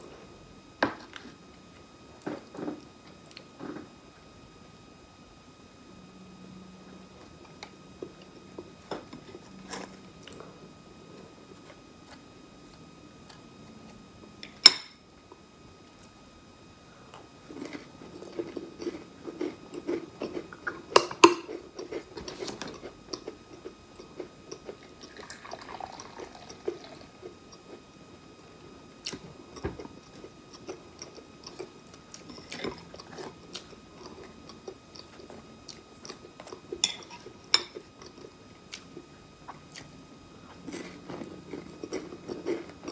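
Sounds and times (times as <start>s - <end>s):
soft chewing: 17.1s - 25.2s, 29.0s - 42.9s.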